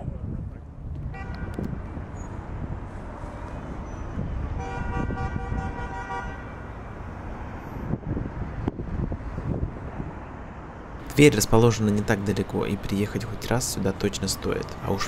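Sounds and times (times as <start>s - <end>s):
street traffic rumble: 0.0s - 15.0s
vehicle horn: 1.1s - 1.7s, 4.5s - 6.6s.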